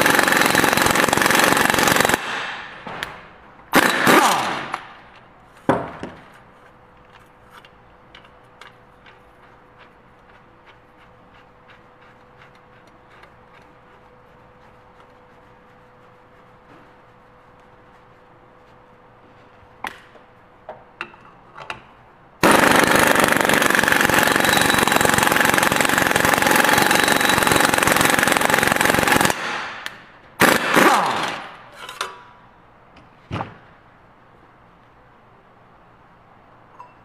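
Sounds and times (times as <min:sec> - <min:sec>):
air impact wrench hammering: 0:00.0 - 0:02.9, 0:22.4 - 0:31.6.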